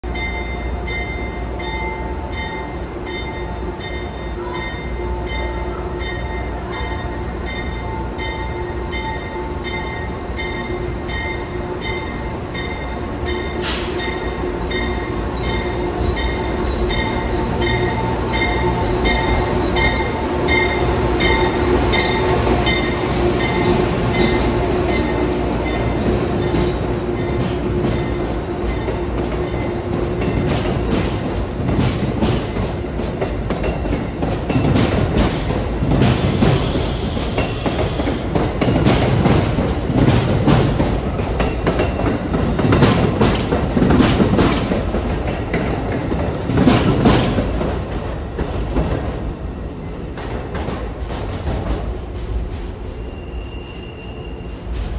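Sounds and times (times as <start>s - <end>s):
train wheels rumbling on rail: 0.0s - 54.9s
locomotive bell ringing: 0.1s - 30.6s.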